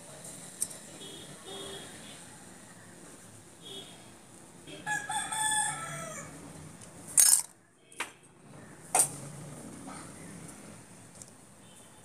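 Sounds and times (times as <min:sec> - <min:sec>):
rooster crowing: 0:04.8 - 0:06.4.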